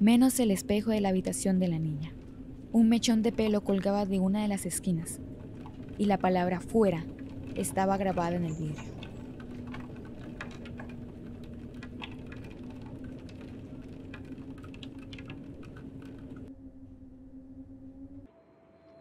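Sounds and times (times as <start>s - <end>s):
steady low hum: 0.0s - 18.3s
light clicks and ticks: 4.8s - 16.5s.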